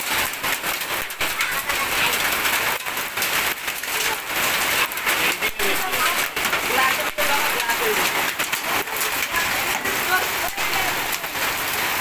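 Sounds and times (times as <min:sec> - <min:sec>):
hailstones clicking: 0:00.0 - 0:12.0
heavy rain hissing: 0:00.0 - 0:12.0.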